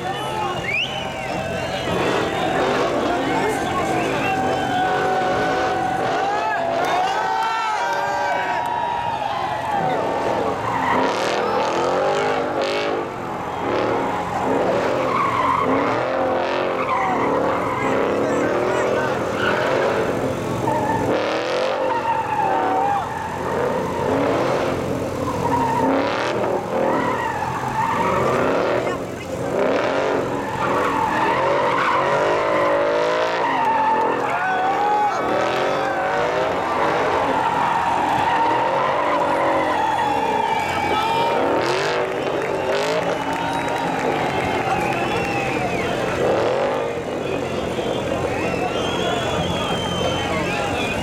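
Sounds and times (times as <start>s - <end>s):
car engine revving: 0.0s - 51.0s
tyres screeching: 9.9s - 46.7s.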